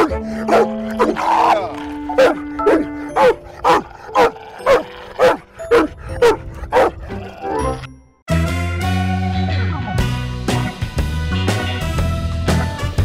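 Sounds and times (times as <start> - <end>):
dog barking: 0.0 - 1.2, 2.1 - 7.2
background music: 0.0 - 13.0.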